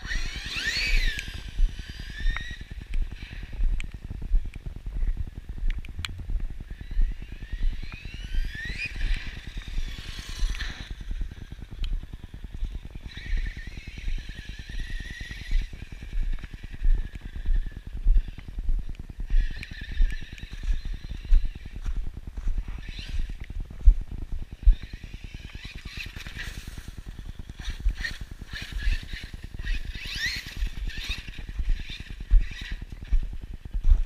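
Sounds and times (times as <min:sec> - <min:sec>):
toy truck electric motor whine: 0:00.0 - 0:03.5, 0:06.7 - 0:18.5, 0:19.3 - 0:23.5, 0:24.4 - 0:33.0
low rumble on microphone: 0:00.9 - 0:25.8.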